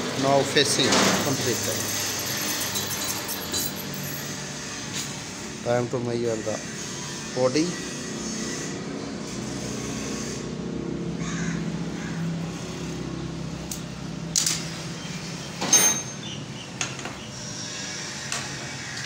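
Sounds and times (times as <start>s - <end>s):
sharp metallic clinks: 0.7s - 4.4s, 15.6s - 16.4s.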